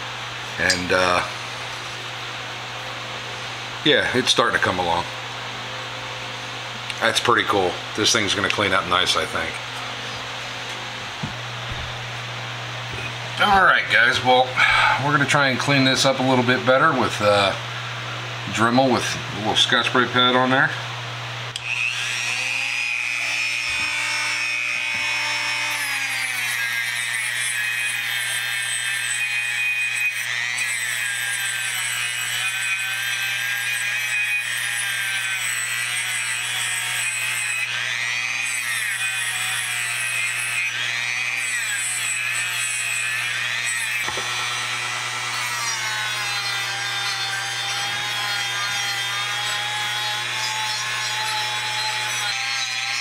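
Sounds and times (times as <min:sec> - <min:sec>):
rotary tool whine: 0:21.5 - 0:53.0.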